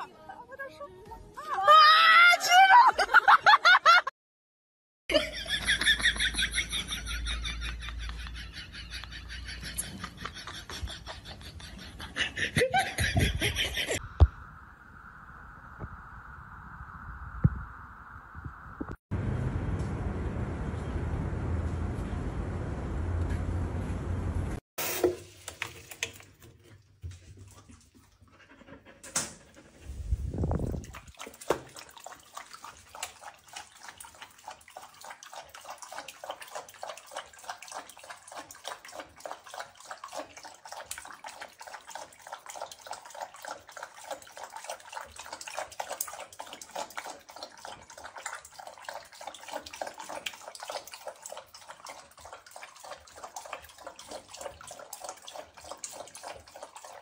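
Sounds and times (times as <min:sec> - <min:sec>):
puppy lapping water: 0:26.0 - 0:29.7, 0:30.4 - 0:57.0.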